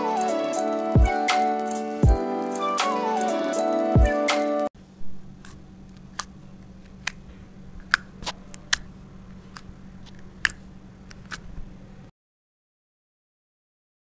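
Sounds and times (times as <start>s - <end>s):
background music: 0.0s - 4.7s
low steady hum: 4.8s - 12.1s.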